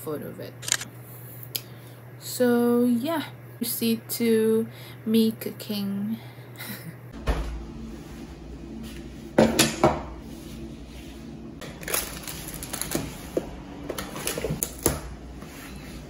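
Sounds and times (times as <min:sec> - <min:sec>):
kitchenware knocking on wooden table: 0:09.4 - 0:10.1.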